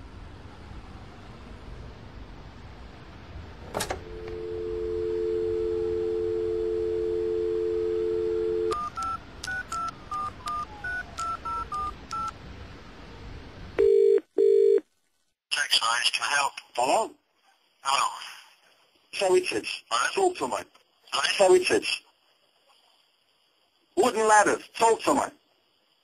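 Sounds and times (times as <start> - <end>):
telephone ringing tone: 4.0 - 12.3, 13.8 - 14.8
dial tone: 4.1 - 12.3, 13.8 - 14.8
keypad tone beeps: 8.6 - 12.3.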